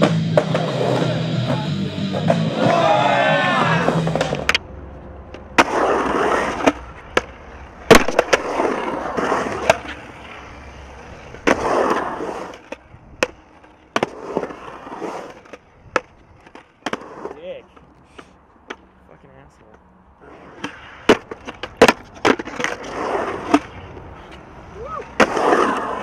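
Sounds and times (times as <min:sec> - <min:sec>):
skateboard clacking on concrete: 0:00.0 - 0:18.9, 0:19.7 - 0:26.0
skateboard wheels rolling on concrete: 0:00.0 - 0:26.0.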